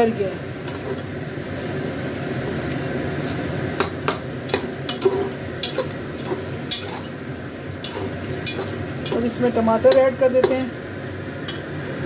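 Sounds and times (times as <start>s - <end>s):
meat sizzling in a pot: 0.0s - 12.0s
metal spoon scraping a pot: 4.5s - 7.2s, 7.8s - 10.6s.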